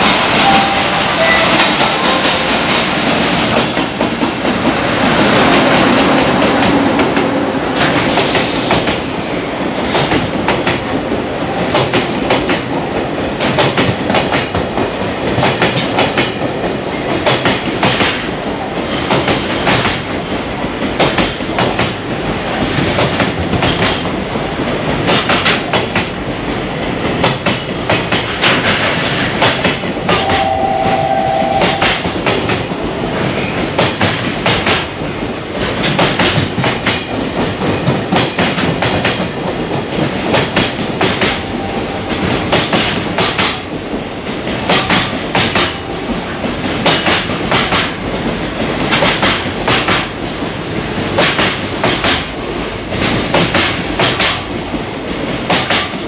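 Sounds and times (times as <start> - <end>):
freight train rumble: 0.0 - 56.0
train wheels clattering over rail joints: 13.4 - 24.2, 24.9 - 30.2, 32.2 - 41.5, 46.4 - 56.0.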